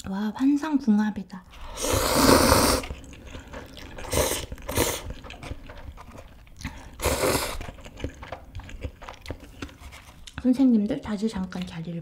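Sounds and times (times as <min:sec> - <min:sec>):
slurping noodles: 0:01.6 - 0:10.2
wet chewing mouth clicks: 0:01.8 - 0:11.8.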